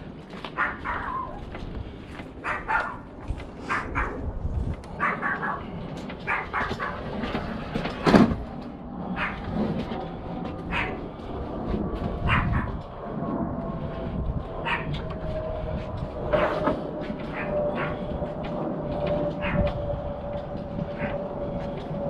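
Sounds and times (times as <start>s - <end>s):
dog barking: 0.6s - 1.4s, 2.4s - 3.0s, 3.7s - 4.2s, 5.0s - 7.0s, 9.2s - 9.4s, 10.7s - 11.0s, 12.2s - 12.8s, 14.6s - 15.0s, 17.3s - 18.0s, 19.4s - 19.6s.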